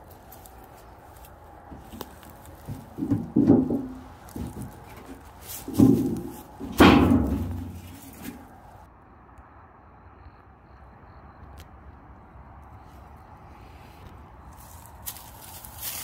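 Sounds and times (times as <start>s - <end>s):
metal tin knocking: 2.7s - 5.0s.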